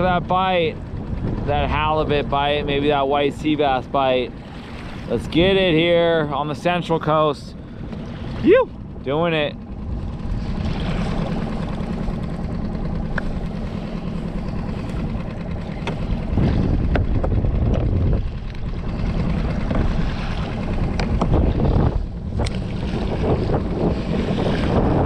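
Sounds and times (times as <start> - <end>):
outboard motor humming: 0.0 - 25.0
water noise: 0.0 - 25.0
wind: 0.0 - 25.0.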